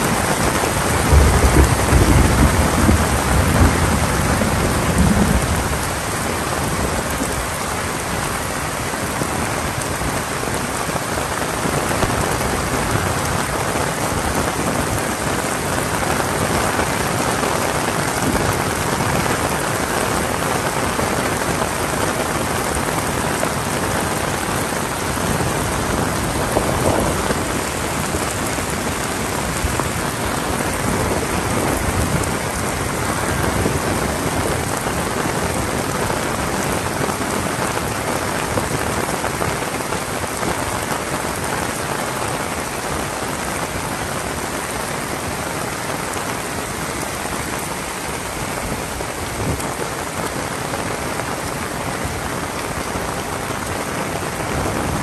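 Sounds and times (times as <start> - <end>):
heavy rain: 0.0 - 55.0.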